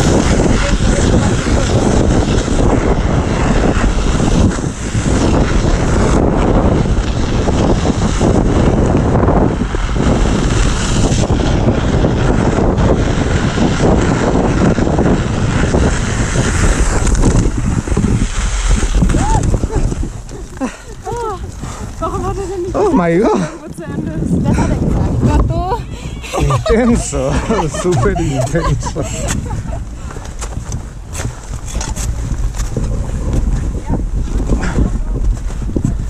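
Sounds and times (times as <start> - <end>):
irregular crackle: 0.0 - 23.6
wind buffeting microphone: 0.0 - 36.0.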